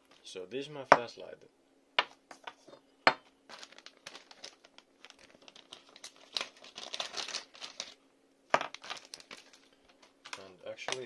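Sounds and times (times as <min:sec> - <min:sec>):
plastic bag crinkling: 0:03.5 - 0:08.0, 0:08.6 - 0:11.0.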